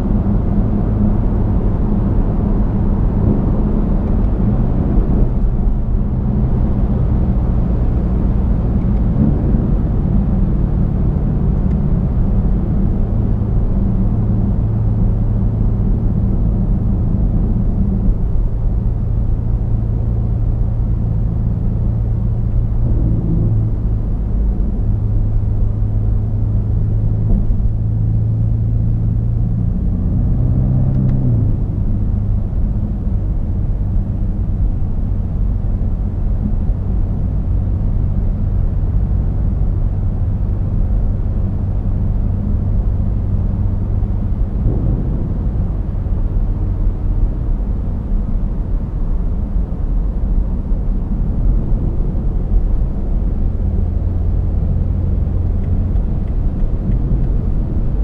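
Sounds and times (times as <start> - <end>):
car engine droning: 0.0 - 58.0
road rumble: 0.0 - 58.0.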